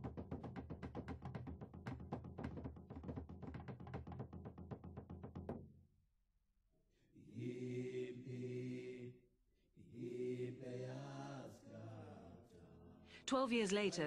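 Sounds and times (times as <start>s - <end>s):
drumbeat: 0.0s - 5.6s
low male voices chanting: 7.2s - 9.2s, 9.8s - 13.1s.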